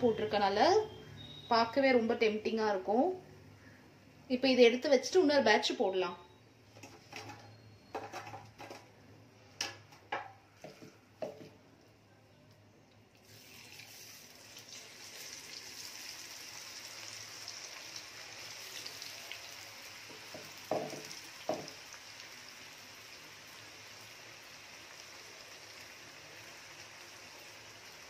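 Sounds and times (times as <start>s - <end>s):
hot oil sizzling: 13.1s - 28.0s.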